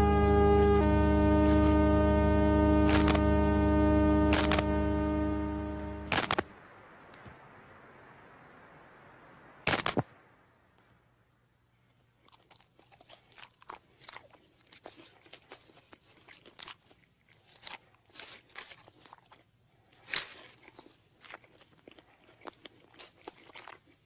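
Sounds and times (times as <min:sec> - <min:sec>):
crisp crunching and crackling: 0:12.2 - 0:24.0.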